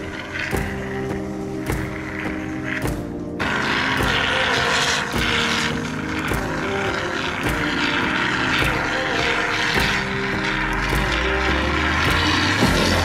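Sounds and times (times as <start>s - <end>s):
synth drone: 0.0s - 13.0s
steady beat: 0.5s - 4.4s, 9.8s - 13.0s.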